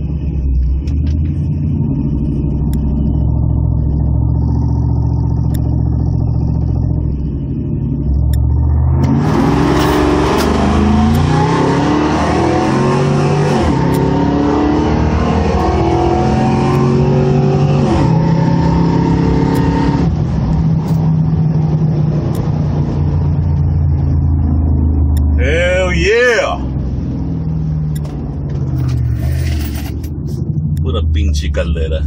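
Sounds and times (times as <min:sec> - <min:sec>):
steady low engine note: 0:00.0 - 0:11.4
truck engines revving: 0:00.0 - 0:32.0.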